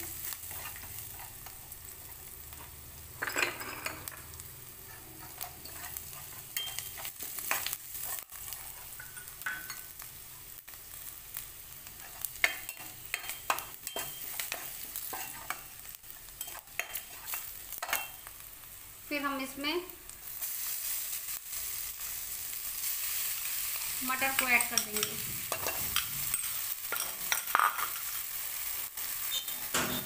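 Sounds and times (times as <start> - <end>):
seeds sizzling in hot oil: 0.0 - 30.0
metal spoon scraping pan: 0.4 - 1.6, 4.9 - 9.8, 12.0 - 15.7, 16.4 - 18.2, 24.2 - 28.1, 29.2 - 30.0.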